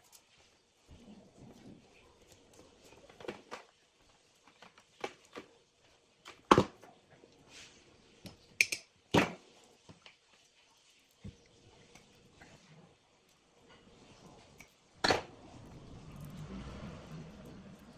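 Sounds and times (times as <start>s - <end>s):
cable and tools rustling and clicking: 1.4s - 7.5s.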